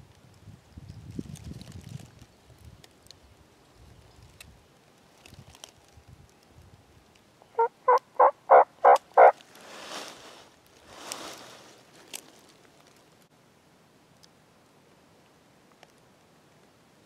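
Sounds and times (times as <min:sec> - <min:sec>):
turkey yelps: 0:07.6 - 0:09.4.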